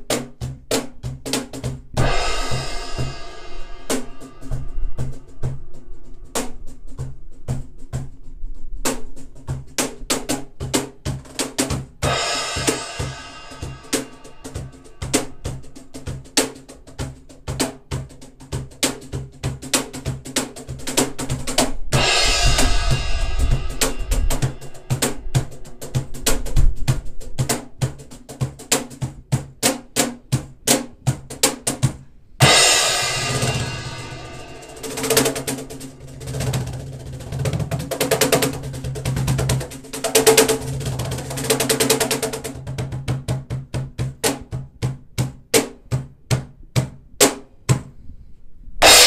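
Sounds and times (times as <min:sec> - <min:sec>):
cajon slaps and bass strokes: 0:00.0 - 0:48.0
cymbal crash: 0:02.0 - 0:06.1, 0:22.0 - 0:25.4, 0:32.4 - 0:36.0.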